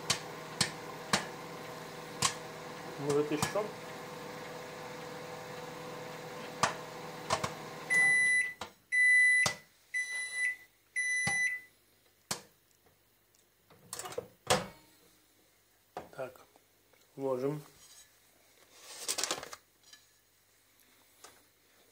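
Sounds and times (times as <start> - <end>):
popcorn kernels popping: 0.0 - 1.3, 2.2 - 3.6
microwave oven humming: 0.0 - 8.3
microwave beeps: 7.9 - 11.7.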